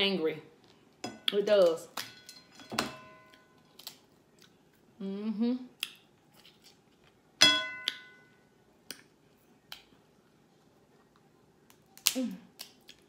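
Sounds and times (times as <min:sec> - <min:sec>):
person humming: 0:05.0 - 0:05.8.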